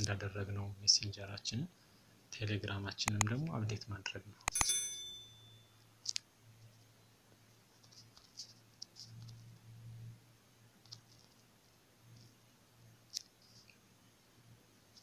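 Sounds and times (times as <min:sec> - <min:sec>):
touchscreen typing clicks: 0:03.1 - 0:03.4, 0:04.5 - 0:05.6.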